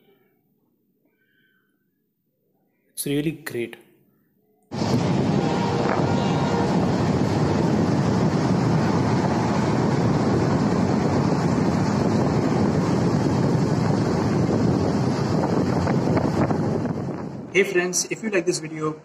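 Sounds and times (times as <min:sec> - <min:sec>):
wind buffeting microphone: 0:04.7 - 0:17.7.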